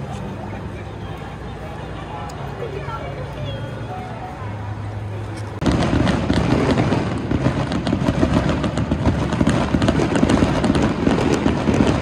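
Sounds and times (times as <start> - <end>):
distant firework bangs: 5.6 - 12.0
firecrackers crackling pops: 5.6 - 12.0.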